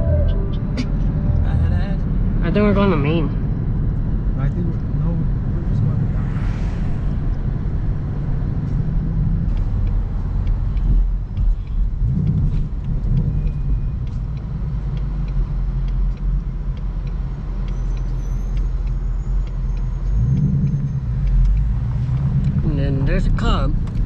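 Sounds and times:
car engine and road rumble: 0.0s - 24.0s.

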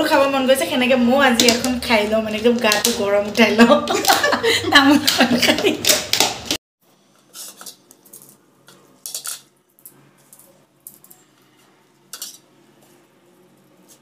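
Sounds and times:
knife scraping plastic plate: 7.2s - 7.8s.

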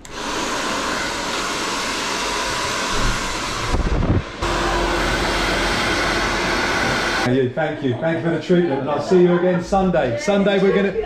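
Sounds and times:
hair dryer blowing: 0.0s - 7.3s.

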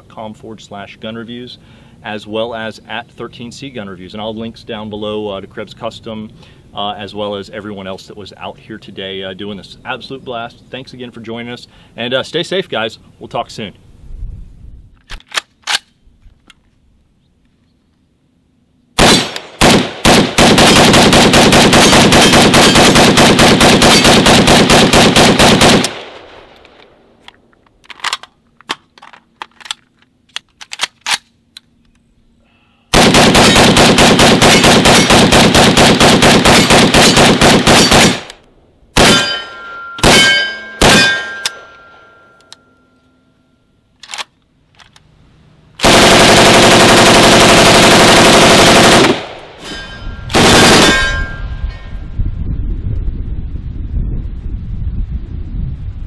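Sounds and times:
gun handling clicks: 15.0s - 16.7s, 25.7s - 32.1s, 43.9s - 45.1s
pistol firing full auto: 19.0s - 26.7s, 33.0s - 42.1s, 45.8s - 49.6s, 50.3s - 51.4s
steel targets ringing: 39.0s - 43.8s, 49.4s - 52.0s.

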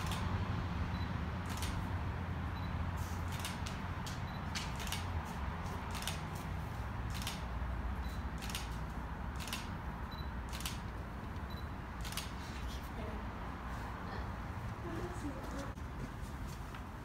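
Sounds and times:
camera shutter clicks: 0.0s - 0.3s, 1.4s - 1.9s, 3.1s - 6.5s, 7.1s - 7.5s, 8.2s - 9.8s, 10.4s - 11.0s, 12.0s - 12.5s.

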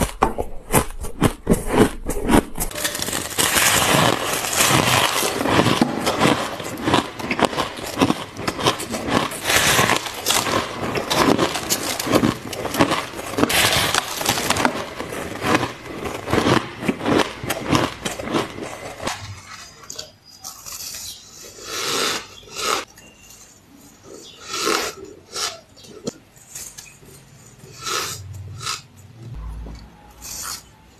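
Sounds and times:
biting and crunching snow: 0.0s - 19.3s
chewing shaved ice: 0.0s - 29.2s.

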